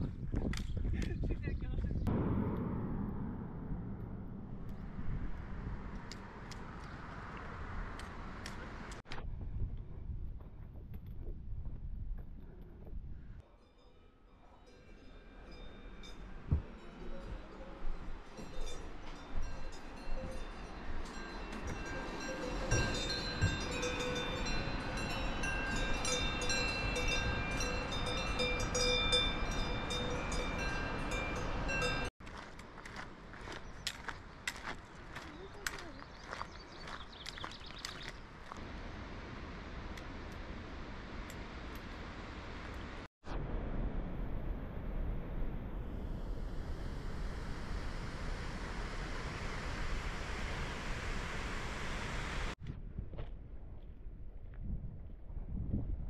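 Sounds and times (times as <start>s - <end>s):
wind buffeting microphone: 0.0s - 13.4s, 45.6s - 56.0s.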